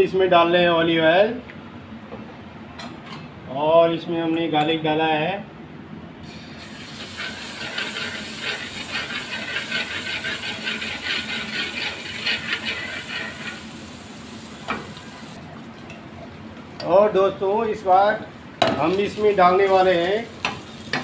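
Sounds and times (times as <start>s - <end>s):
ladle stirring in a pan: 6.6s - 15.2s
garlic sizzling in oil: 6.6s - 15.4s, 19.0s - 21.0s.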